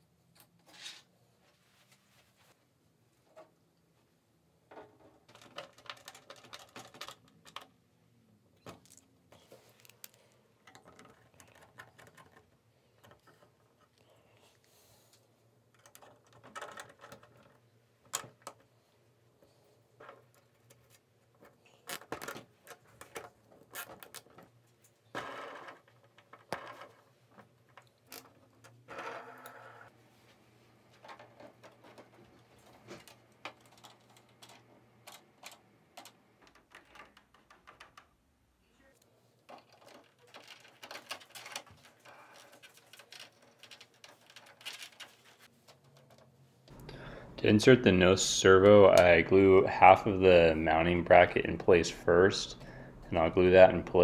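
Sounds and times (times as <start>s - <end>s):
small hard parts clicking and rattling: 4.7s - 7.8s, 8.6s - 14.0s, 15.6s - 18.7s, 30.9s - 38.3s, 39.4s - 47.0s.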